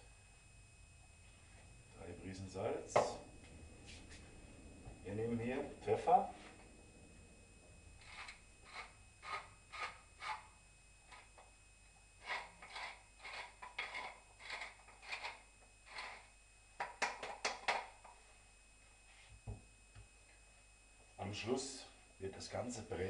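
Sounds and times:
pepper mill grinding: 8.0s - 10.4s, 12.2s - 16.2s.

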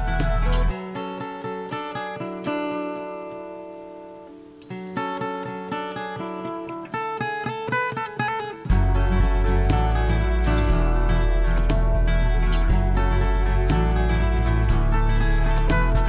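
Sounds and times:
acoustic guitar picking: 0.0s - 16.0s.

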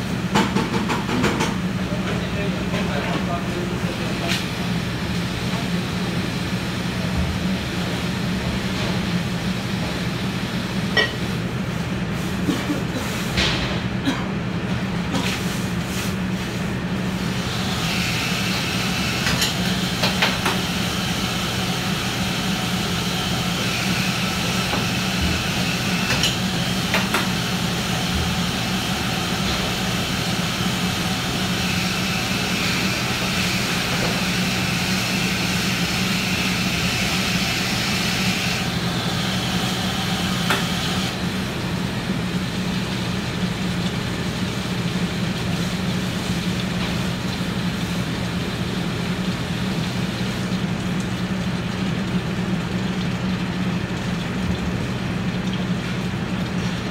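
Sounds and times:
exhaust fan humming: 0.0s - 56.9s
water hissing on hot griddle: 17.1s - 56.9s.

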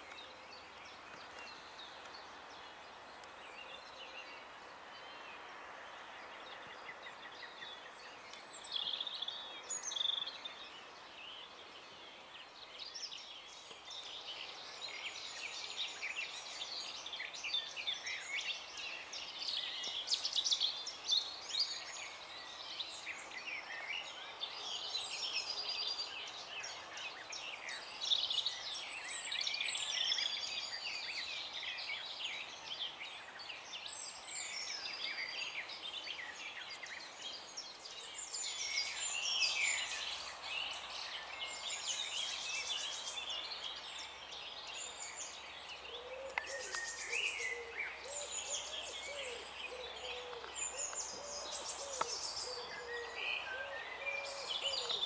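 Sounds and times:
birdsong chirps and whistles: 6.0s - 55.0s.

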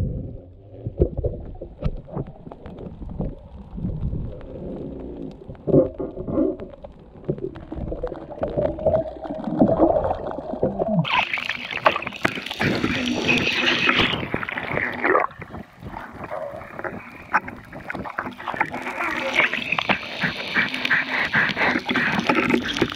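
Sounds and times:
underwater gurgling: 0.0s - 22.9s
underwater clicks: 0.9s - 22.9s
hissing rush of water and air: 11.1s - 22.9s.

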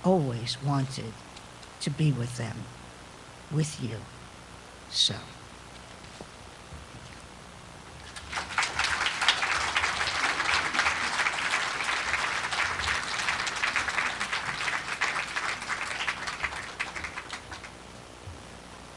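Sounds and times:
audience applauding: 8.1s - 17.8s.

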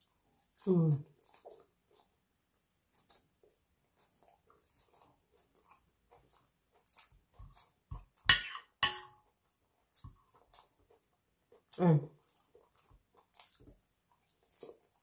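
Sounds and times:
chewing salad: 0.0s - 15.0s
knife and fork cutting on plate: 7.9s - 9.2s
cutlery clinking on plate: 8.3s - 9.2s.

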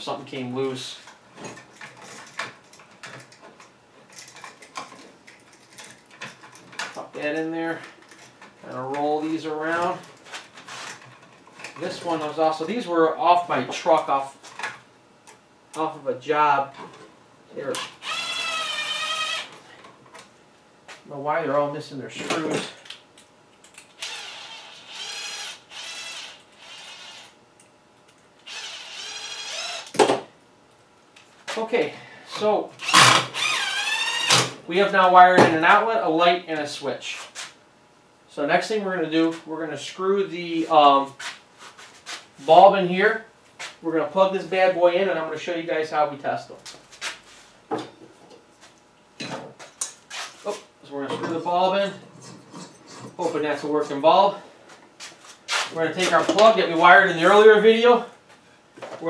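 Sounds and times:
power drill driving screws: 17.8s - 19.5s, 24.0s - 27.4s, 28.4s - 30.0s, 32.8s - 34.5s.

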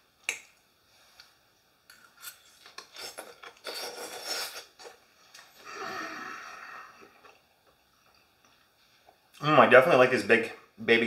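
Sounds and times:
chewing: 7.0s - 9.4s.

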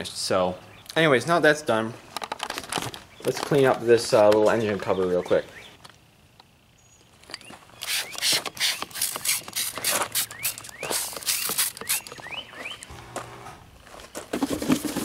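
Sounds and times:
spray bottle squirts hissing: 7.9s - 12.1s.

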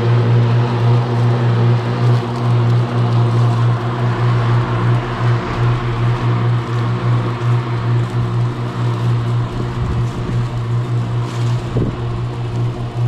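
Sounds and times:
electric mower humming: 0.0s - 13.0s.

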